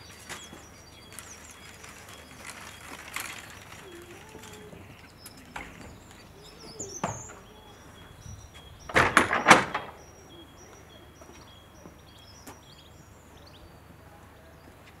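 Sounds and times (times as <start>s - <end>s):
small birds chirping: 0.0s - 15.0s
wooden door shutting: 8.8s - 10.0s.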